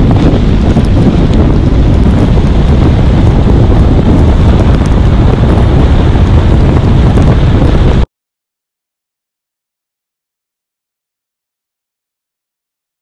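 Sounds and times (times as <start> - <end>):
wind buffeting microphone: 0.0 - 8.1.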